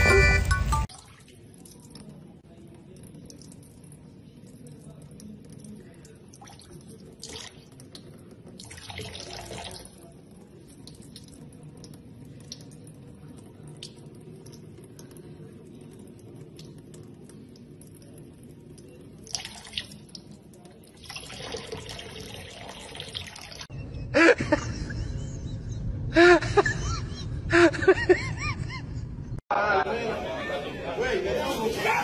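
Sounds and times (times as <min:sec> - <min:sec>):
faucet water splashing into sink: 0:00.8 - 0:23.7
drip-like ticks: 0:00.9 - 0:08.8, 0:10.0 - 0:21.1.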